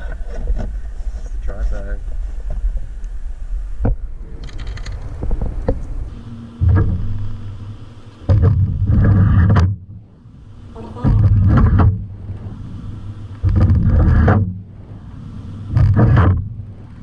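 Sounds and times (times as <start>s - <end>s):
wind rumble on microphone: 0.0s - 17.0s.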